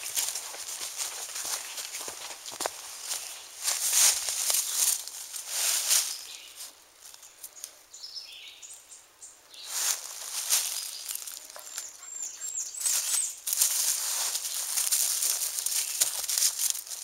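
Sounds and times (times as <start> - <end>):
dry leaves rustling and crunching: 0.0 - 7.3, 9.6 - 12.1, 12.7 - 17.0
faint bird chirps: 10.6 - 13.4.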